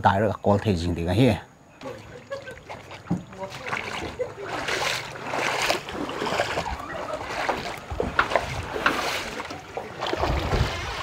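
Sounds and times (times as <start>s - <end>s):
people wading through water: 1.6s - 11.0s.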